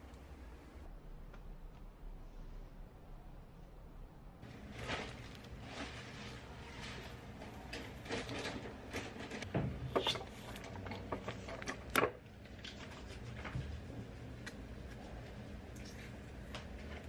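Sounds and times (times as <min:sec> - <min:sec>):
plastic film crinkling: 0:04.4 - 0:09.0.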